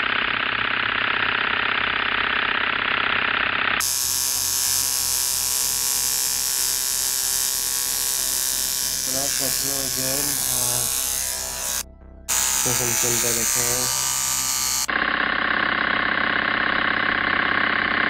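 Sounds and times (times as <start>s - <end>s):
electric hair clipper buzzing: 0.0s - 18.0s.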